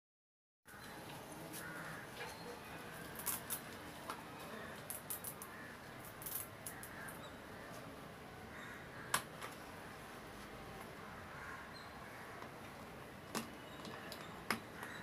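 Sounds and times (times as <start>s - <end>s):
plastic toy clicks and knocks: 4.8s - 6.9s.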